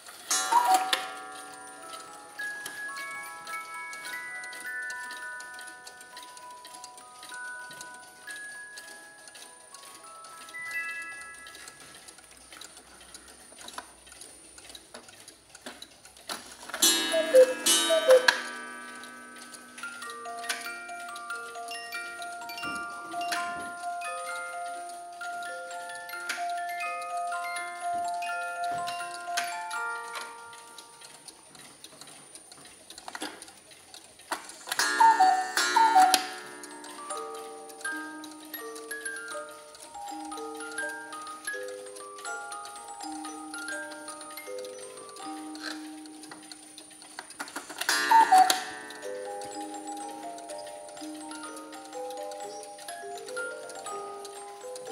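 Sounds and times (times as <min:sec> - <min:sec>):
clock ticking: 0:00.0 - 0:54.9
two-note cuckoo call: 0:00.3 - 0:01.2, 0:16.8 - 0:19.4, 0:34.8 - 0:38.4, 0:47.8 - 0:51.5.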